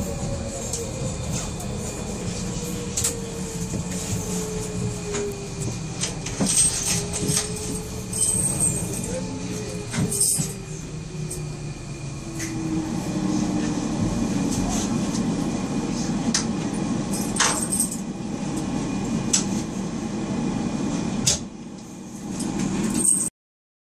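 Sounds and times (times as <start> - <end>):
train wheels and motors rumbling: 0.0 - 23.3.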